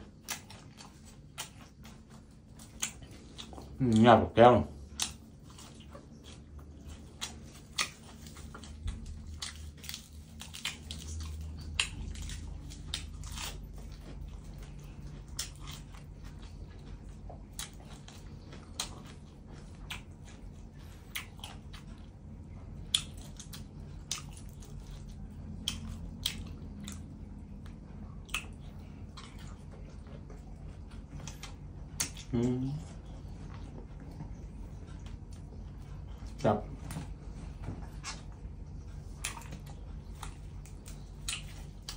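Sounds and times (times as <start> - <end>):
person chewing food: 0.0 - 41.9
wet mouth smacks and clicks: 22.9 - 24.4, 32.0 - 32.3.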